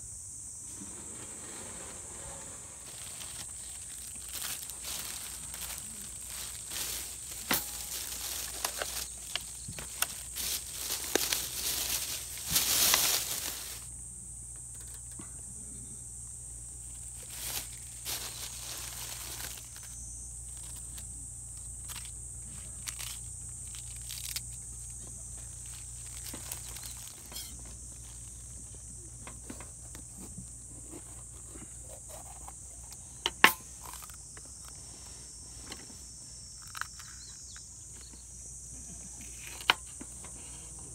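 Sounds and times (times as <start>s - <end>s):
high insect drone: 0.0s - 40.9s
plastic bag crinkling: 2.8s - 13.9s, 17.1s - 21.0s, 25.5s - 27.5s.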